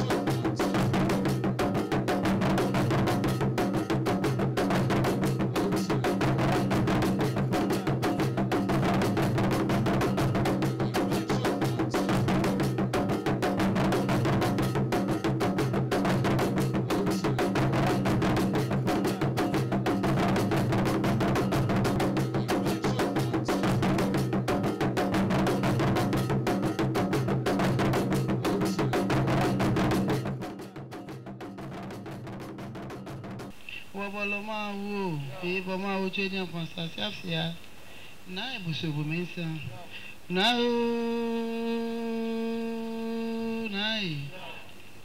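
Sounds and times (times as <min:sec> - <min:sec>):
fast drum beat: 0:00.0 - 0:33.6.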